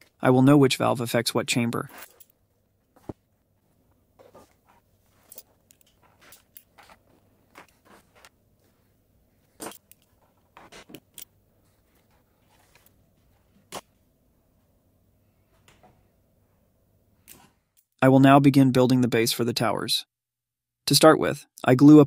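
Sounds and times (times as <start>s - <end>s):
clicks and rustles of handling: 1.8s - 14.0s.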